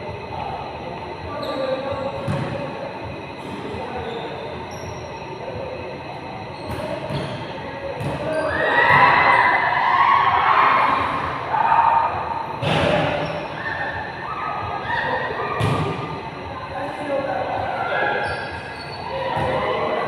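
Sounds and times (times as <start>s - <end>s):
players' voices: 0.0s - 20.0s
sneaker squeaks: 1.3s - 2.6s, 3.3s - 5.4s, 6.4s - 9.6s, 12.5s - 16.2s, 17.8s - 20.0s
basketballs bouncing on court: 8.0s - 8.3s, 15.6s - 15.9s
people shouting: 8.3s - 12.5s.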